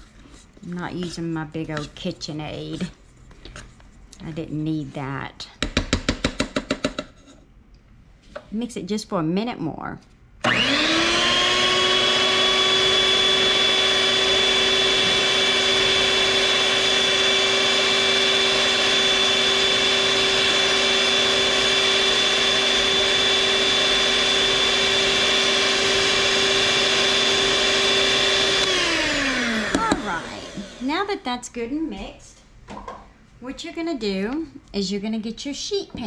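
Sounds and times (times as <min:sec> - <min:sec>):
stand mixer motor whine: 0:10.4 - 0:30.8.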